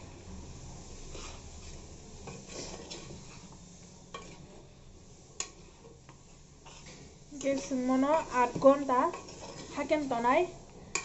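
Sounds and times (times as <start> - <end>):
spoon stirring food in pot: 1.1 - 4.6, 5.4 - 10.0.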